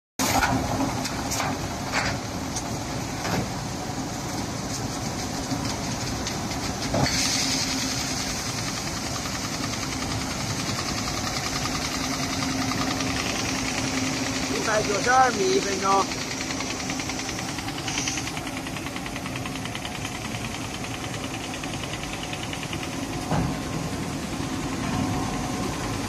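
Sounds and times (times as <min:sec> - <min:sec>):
machine running with low hum: 0:00.4 - 0:26.0
loud hiss: 0:07.0 - 0:18.6.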